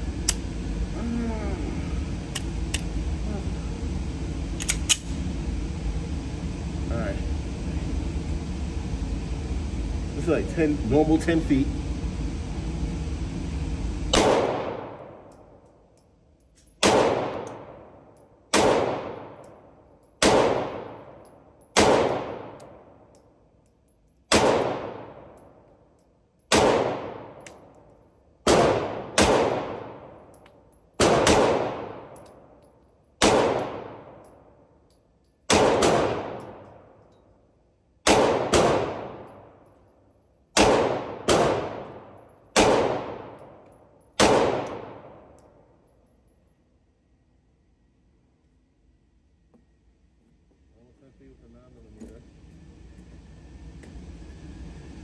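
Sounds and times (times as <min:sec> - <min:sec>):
handgun shots echoing indoors: 0:14.2 - 0:15.4, 0:16.6 - 0:17.9, 0:18.5 - 0:22.8, 0:24.3 - 0:25.4, 0:26.5 - 0:27.8, 0:28.5 - 0:30.1, 0:31.0 - 0:32.4, 0:33.2 - 0:34.4, 0:35.4 - 0:37.2, 0:38.0 - 0:39.7, 0:40.5 - 0:45.6.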